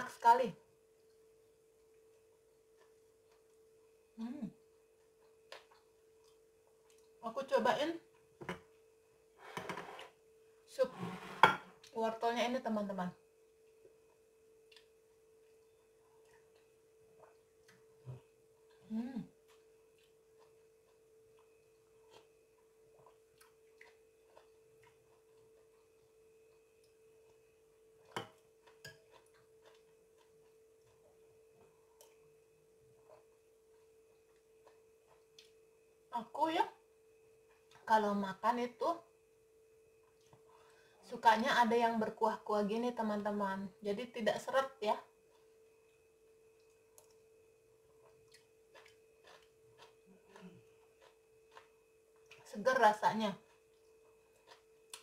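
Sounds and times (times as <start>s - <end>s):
faint steady tone: 0.0s - 9.4s, 10.1s - 55.0s
faint steady hum: 0.0s - 55.0s
spoon clicks and chewing: 28.1s - 30.6s, 54.5s - 55.0s.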